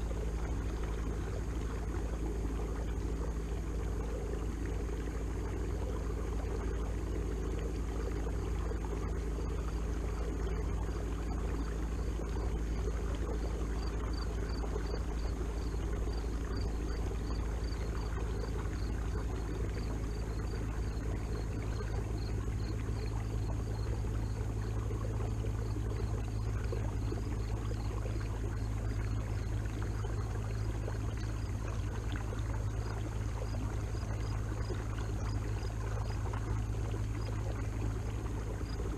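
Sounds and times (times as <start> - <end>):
water washing along hull: 0.0 - 38.9.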